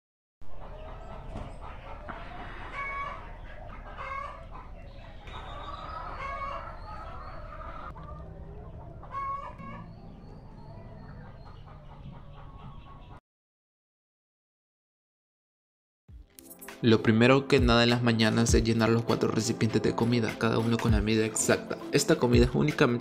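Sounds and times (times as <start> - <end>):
hens clucking and calling: 0.5 - 13.2.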